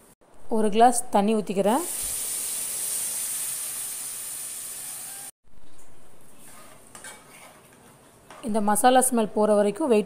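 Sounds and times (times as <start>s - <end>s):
water sizzling in hot oil: 1.8s - 5.4s.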